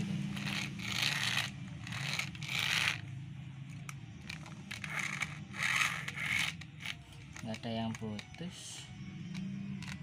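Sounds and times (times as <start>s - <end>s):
toy car scraping on tile floor: 0.0s - 3.1s, 3.7s - 7.6s
low steady hum: 0.0s - 10.0s.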